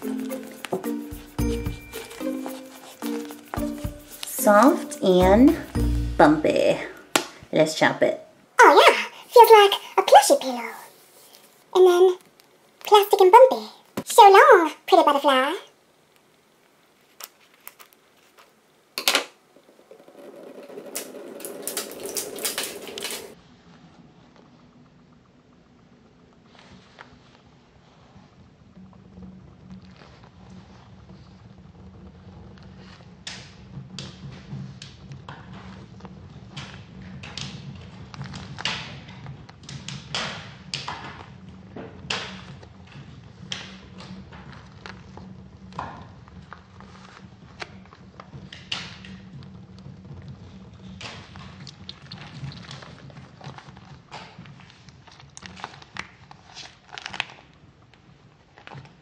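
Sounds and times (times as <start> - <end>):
wet squishing: 51.6 - 53.4.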